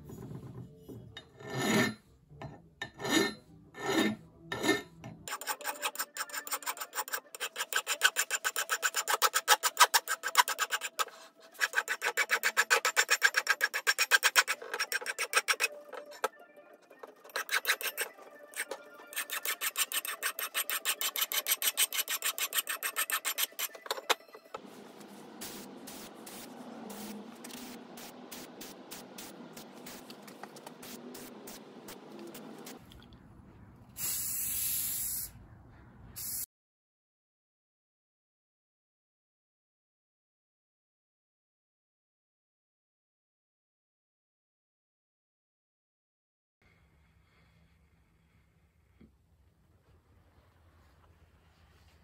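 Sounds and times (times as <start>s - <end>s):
hand file rasping on steel: 1.4s - 2.0s, 2.9s - 16.3s, 17.2s - 24.3s.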